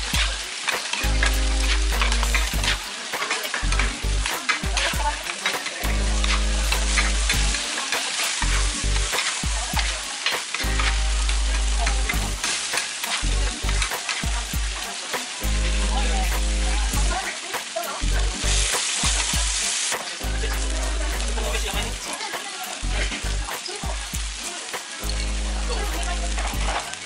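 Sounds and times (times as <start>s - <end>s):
batter sizzling on griddle: 0.0s - 27.0s
metal spatulas scraping griddle: 0.6s - 9.4s.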